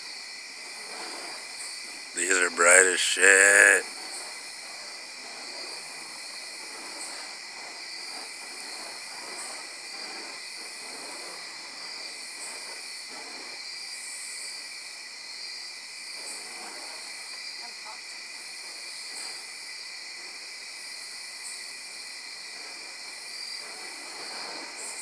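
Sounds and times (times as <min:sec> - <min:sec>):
night insects chorus: 0:16.9 - 0:25.0.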